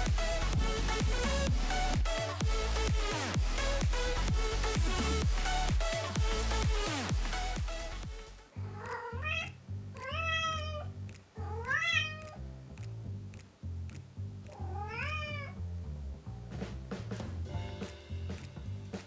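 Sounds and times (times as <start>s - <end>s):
background music with beat: 0.0s - 8.5s, 16.5s - 19.0s
kitten meowing: 8.6s - 12.4s, 14.5s - 15.6s.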